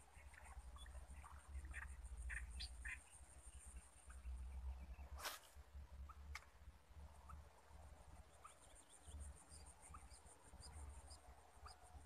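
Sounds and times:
bird chirps: 0:00.1 - 0:05.4, 0:08.2 - 0:12.0.

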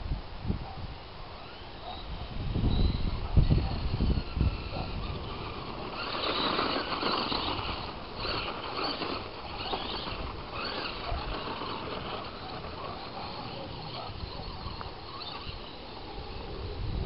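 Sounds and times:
toy truck electric motor whirring: 0:01.4 - 0:16.8
tyres crunching gravel: 0:03.8 - 0:16.1.

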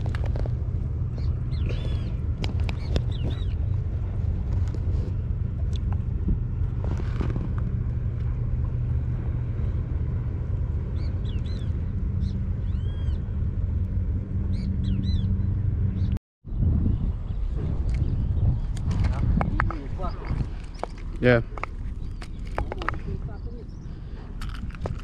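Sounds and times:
water rumble: 0:00.0 - 0:25.0
wind rumble: 0:00.0 - 0:25.0
bird chirps: 0:01.2 - 0:03.7.

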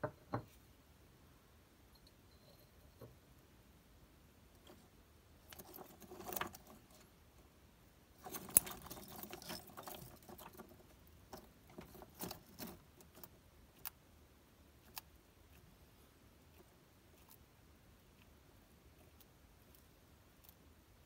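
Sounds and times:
rustling of claws and bark chips: 0:04.6 - 0:07.1, 0:08.2 - 0:13.9.

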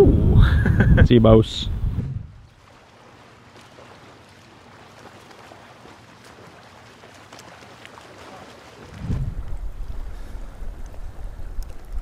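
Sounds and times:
waves lapping among rocks: 0:02.5 - 0:12.0.

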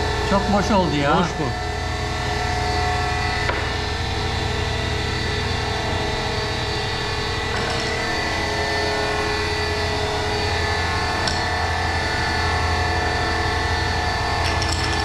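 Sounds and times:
workshop machine humming: 0:00.0 - 0:15.0.

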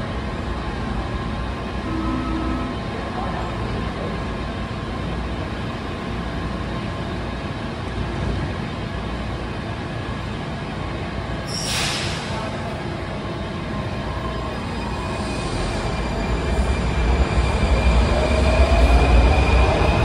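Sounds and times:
sharp hiss of air: 0:11.5 - 0:12.4.

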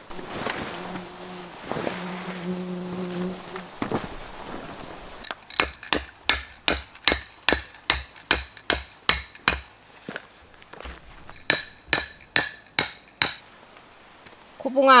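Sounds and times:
hammer striking metal tent pegs: 0:05.4 - 0:09.7, 0:11.3 - 0:13.4.

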